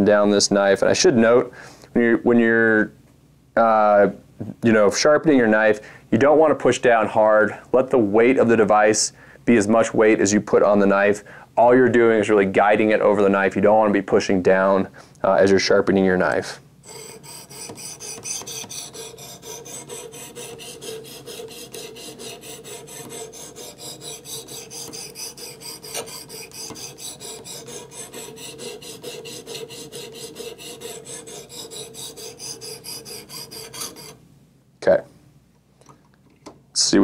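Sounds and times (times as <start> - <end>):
knife sharpener rasping on blade: 16.8 - 34.2.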